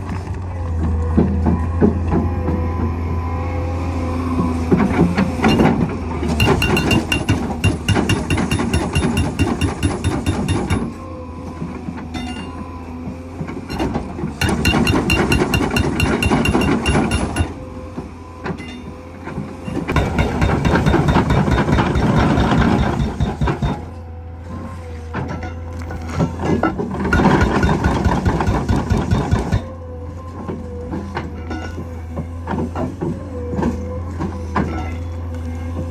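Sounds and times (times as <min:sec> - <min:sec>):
diesel engine and hydraulics humming: 0:00.0 - 0:35.9
hydraulic breaker hammering ground: 0:04.7 - 0:12.8, 0:13.4 - 0:24.2, 0:25.3 - 0:29.8.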